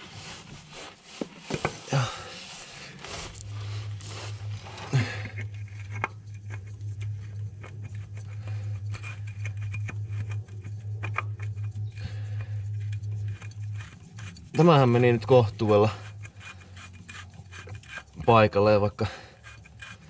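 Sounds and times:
steady low hum: 0:00.0 - 0:20.0
oil filter scratching and ticking: 0:02.8 - 0:20.0.

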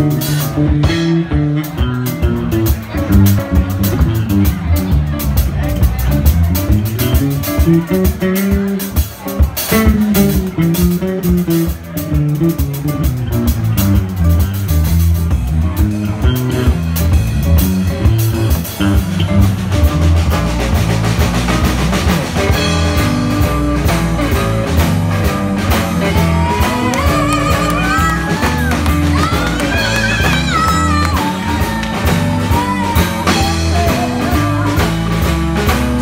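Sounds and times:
electric guitar: 0:00.0 - 0:36.0
steady drum beat: 0:00.0 - 0:36.0
stepping bass line: 0:09.7 - 0:36.0.

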